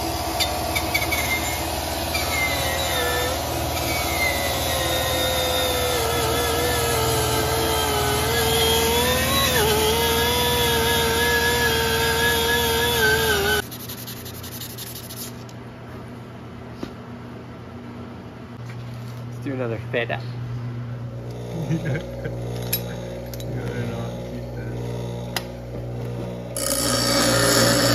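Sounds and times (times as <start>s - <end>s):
angle grinder cutting steel: 0.0s - 13.6s, 21.2s - 27.9s.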